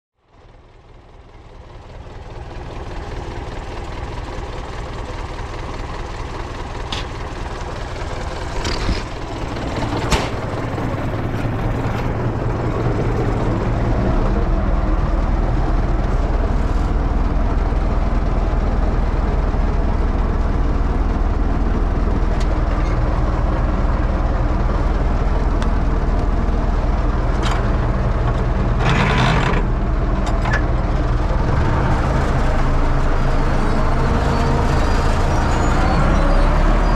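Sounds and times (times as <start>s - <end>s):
tractor diesel engine running: 0.2s - 36.9s
machinery knocks and rattles: 8.3s - 12.3s, 27.3s - 30.8s.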